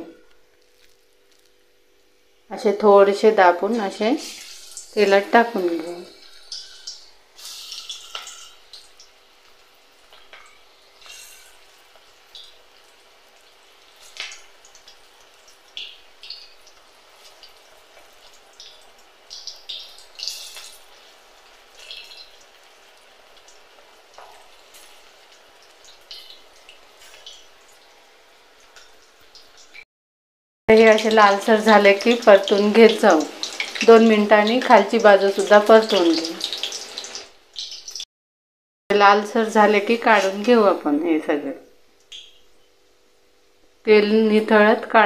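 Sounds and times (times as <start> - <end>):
oil crackling and popping: 0.3 - 2.0, 4.2 - 29.8, 30.7 - 38.1
batter sizzling in hot oil: 0.4 - 29.8, 30.7 - 38.1.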